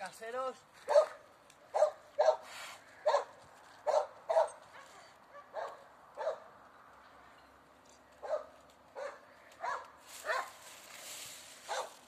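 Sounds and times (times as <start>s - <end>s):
sharp bark-like animal calls: 0.8s - 6.4s, 11.7s - 12.0s.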